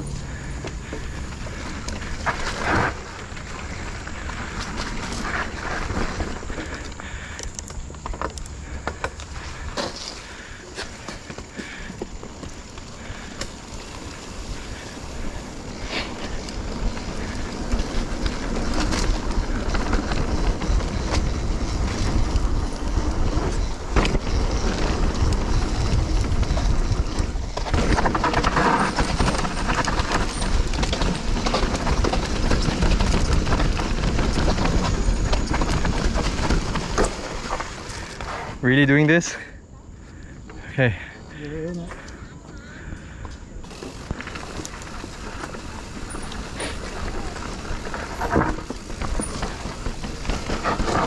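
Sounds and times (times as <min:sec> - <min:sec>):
low rumble: 0:00.0 - 0:07.2
bike rattling and clattering: 0:00.0 - 0:39.5, 0:40.4 - 0:51.0
bike tyres rolling on dirt: 0:00.0 - 0:51.0.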